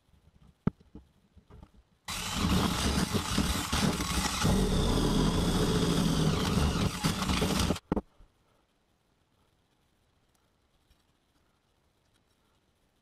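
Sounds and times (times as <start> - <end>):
cordless drill scouring rust: 2.1 - 7.8.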